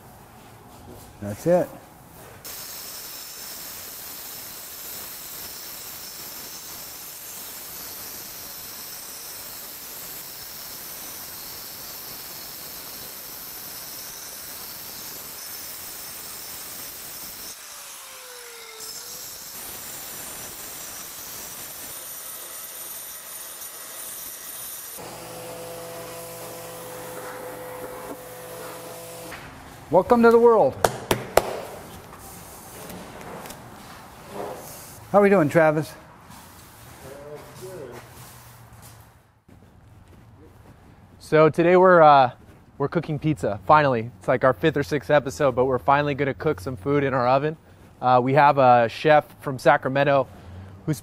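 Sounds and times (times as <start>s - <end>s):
angle grinder grinding brick: 2.5s - 29.3s.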